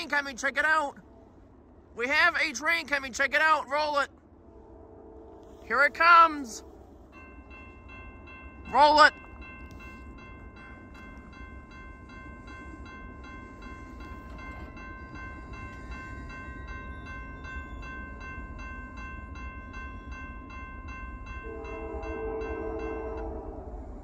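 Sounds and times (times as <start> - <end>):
railroad crossing bell ringing: 0.0 - 4.1, 5.4 - 24.0
locomotive air horn chord: 4.4 - 7.0, 21.4 - 23.6.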